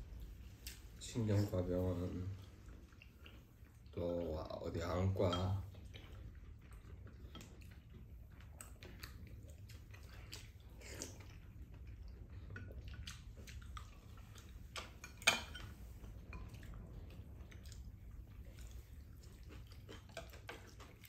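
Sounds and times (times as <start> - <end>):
chewing: 0.0 - 21.0.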